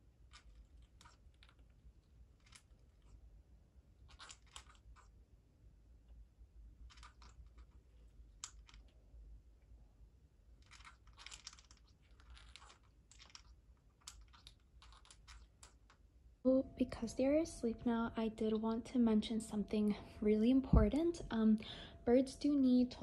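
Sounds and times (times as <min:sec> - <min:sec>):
parrots grinding beaks: 0:10.6 - 0:16.0.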